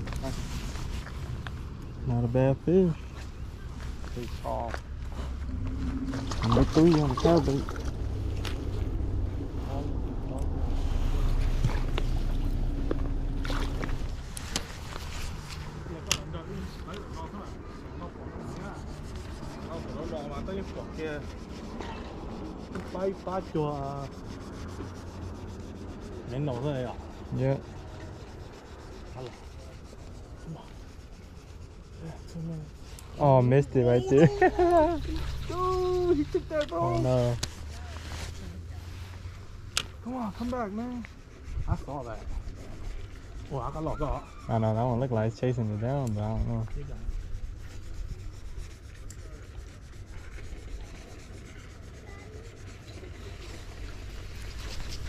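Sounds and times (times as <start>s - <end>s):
low rumble: 3.0s - 19.9s
fishing reel rubbing and scratching: 3.1s - 55.0s.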